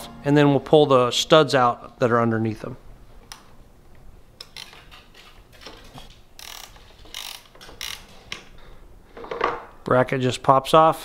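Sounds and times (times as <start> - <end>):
ratchet wrench clicking: 6.4 - 8.5.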